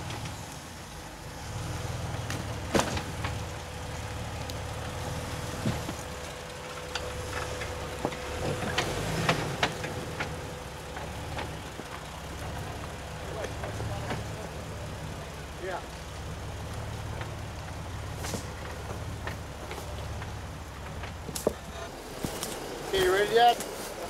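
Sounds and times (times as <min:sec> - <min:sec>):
car engine running at low speed: 0:00.0 - 0:24.0
sharp knocks and clunks: 0:02.2 - 0:03.5, 0:05.5 - 0:06.2.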